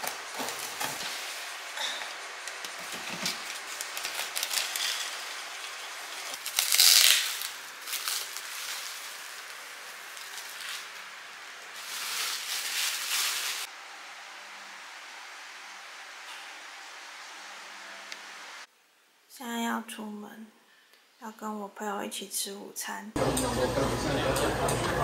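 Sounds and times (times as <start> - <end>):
plastic wrapping crinkling: 0.0 - 13.7
faint steady hiss: 0.0 - 22.1.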